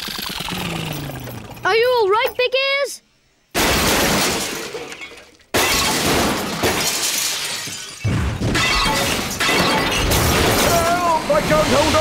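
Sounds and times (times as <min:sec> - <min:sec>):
cartoon crashes shattering: 0:03.6 - 0:12.0.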